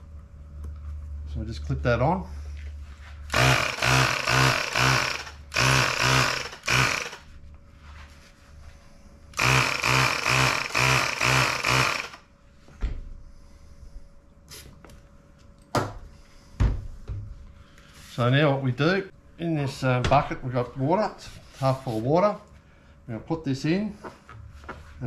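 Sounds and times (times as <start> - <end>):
tyre inflator running: 3.2 - 7.4, 9.3 - 12.3.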